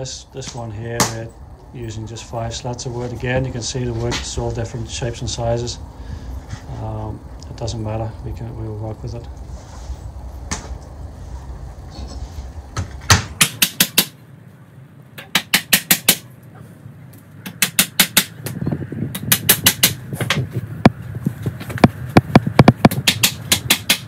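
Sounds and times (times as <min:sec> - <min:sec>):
hammer tapping nails into wood: 0:21.8 - 0:24.0.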